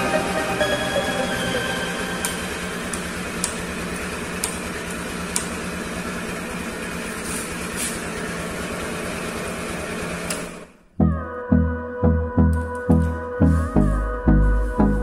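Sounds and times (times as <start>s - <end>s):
scooter engine idling: 0.0s - 10.9s.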